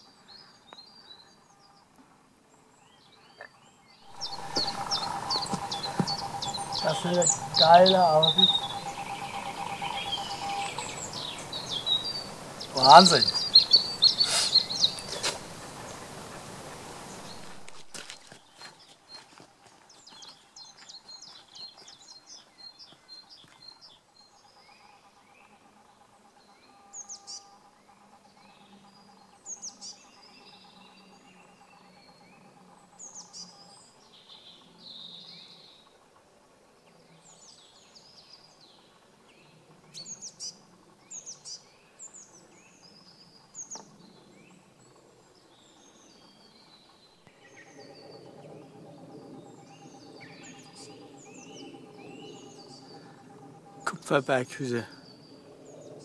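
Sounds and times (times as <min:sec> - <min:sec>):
faint steady hum: 0:00.0 - 0:18.4, 0:23.8 - 0:56.0
songbirds chirping and trilling: 0:00.0 - 0:56.0.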